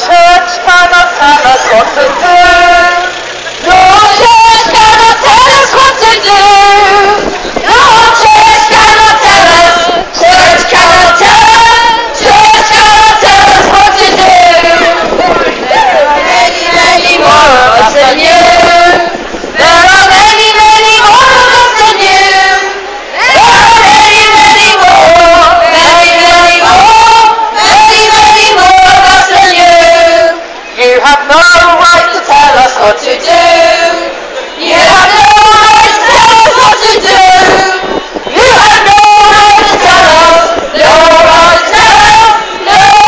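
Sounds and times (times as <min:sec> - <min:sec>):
voice through megaphone: 0:00.0 - 0:22.2
group of women singing: 0:00.0 - 0:43.0.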